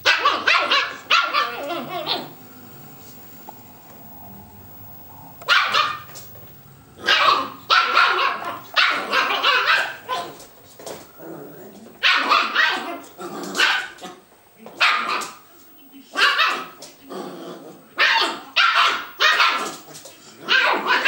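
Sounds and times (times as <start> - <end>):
puppy barking: 0.0 - 2.4, 5.4 - 6.2, 7.0 - 10.4, 12.0 - 14.2, 14.8 - 15.4, 16.2 - 16.8, 18.0 - 19.8, 20.5 - 21.0.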